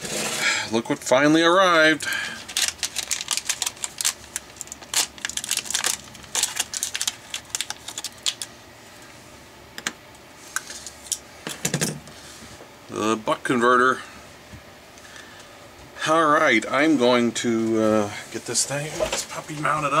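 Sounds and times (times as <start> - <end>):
anti-static bag crinkling: 1.8 - 8.6.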